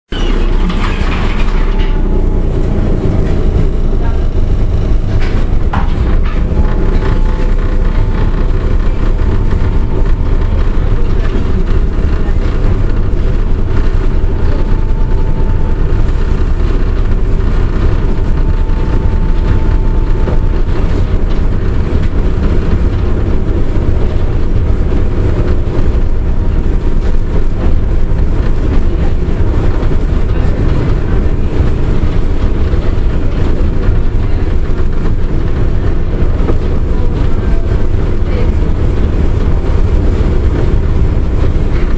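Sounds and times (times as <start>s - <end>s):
faint high whine: 0.1s - 23.6s
tram running gear rumble: 0.1s - 41.9s.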